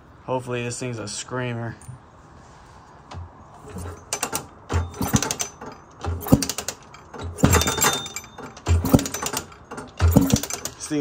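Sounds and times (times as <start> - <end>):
engine pushing against compression: 3.1 - 10.9
kickstart ratchet clicking: 3.7 - 10.9.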